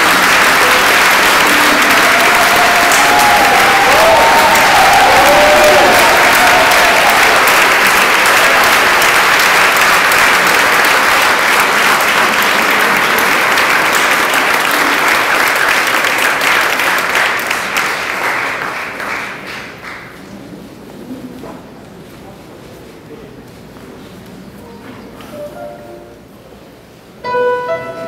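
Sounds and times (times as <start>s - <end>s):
large audience applauding: 0.0s - 20.3s.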